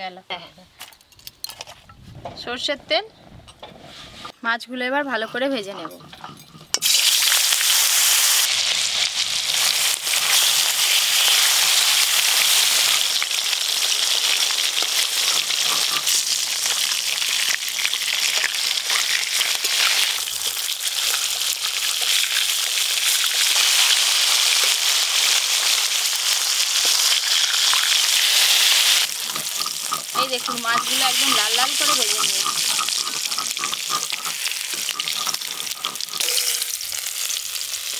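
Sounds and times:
fish sizzling in hot oil: 6.7s - 37.9s.

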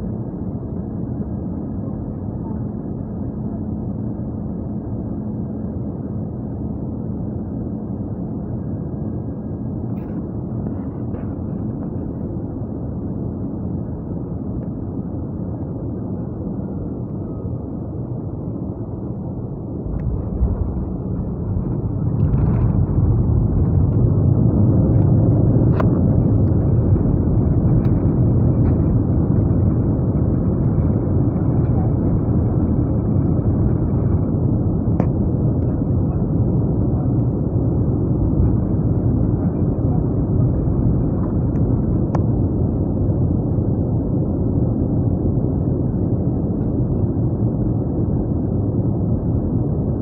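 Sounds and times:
airliner cabin engine hum: 0.0s - 50.0s
reverse thrust engine rush: 19.1s - 39.6s
wheels hitting runway rumble: 19.8s - 25.1s.

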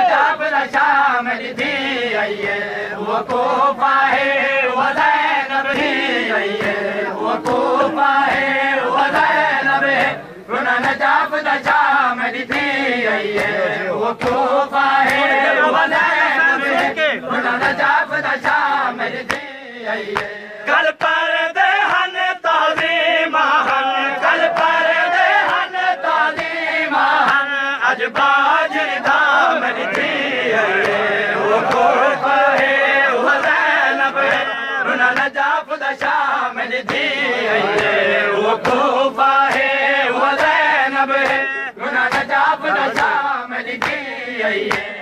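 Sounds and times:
men chanting a lament: 0.0s - 45.0s
hands slapping chests: 7.4s - 10.2s, 12.4s - 13.6s, 14.2s - 15.3s, 15.9s - 17.0s, 17.6s - 19.5s, 20.1s - 27.5s, 28.1s - 34.5s, 35.1s - 38.0s, 38.6s - 45.0s.

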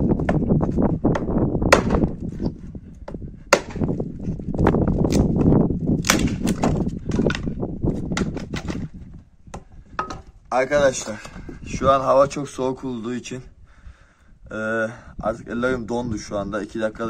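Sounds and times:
hatchet splitting wood: 0.1s - 4.0s, 4.6s - 8.9s.

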